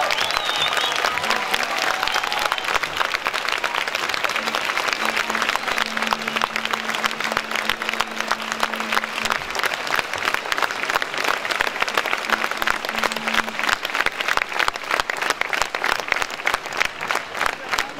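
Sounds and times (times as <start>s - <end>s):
crowd applauding: 0.0s - 17.9s
faint low steady tone: 4.4s - 9.6s.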